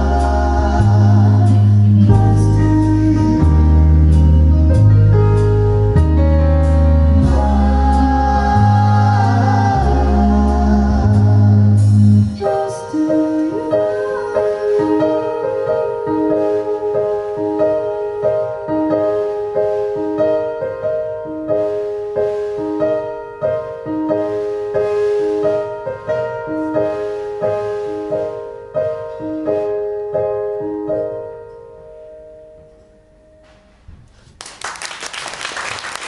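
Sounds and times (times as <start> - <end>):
keyboard playing piano: 0.0 - 33.8
audience applause: 34.3 - 36.0.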